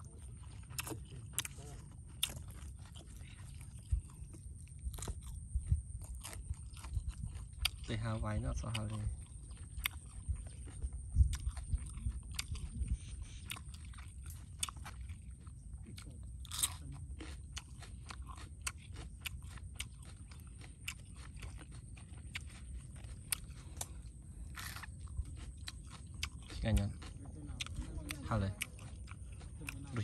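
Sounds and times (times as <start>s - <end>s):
crunchy bites: 0.0s - 30.0s
person chewing wetly: 0.0s - 30.0s.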